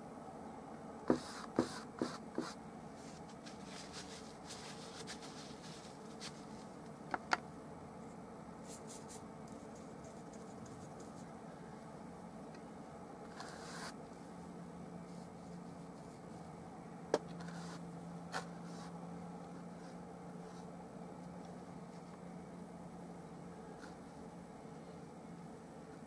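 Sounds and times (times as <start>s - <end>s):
low room hum: 0.0s - 26.0s
brush scratching on canvas: 1.1s - 6.8s, 8.6s - 11.3s.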